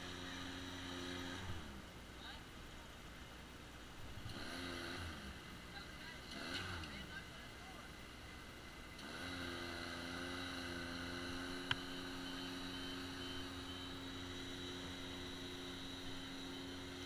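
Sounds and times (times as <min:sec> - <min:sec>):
engine humming steadily: 0:00.0 - 0:17.0.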